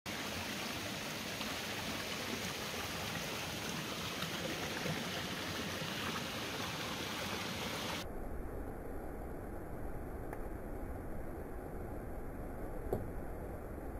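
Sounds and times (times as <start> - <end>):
stream running over rocks: 0.1 - 8.0.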